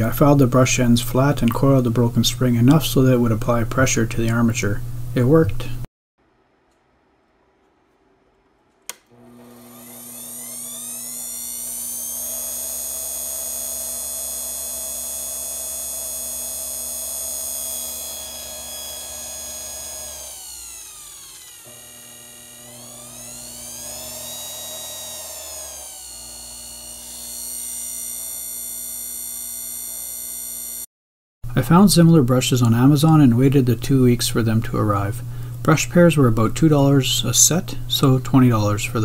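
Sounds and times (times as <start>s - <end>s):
lathe motor whining: 9.1s - 30.9s.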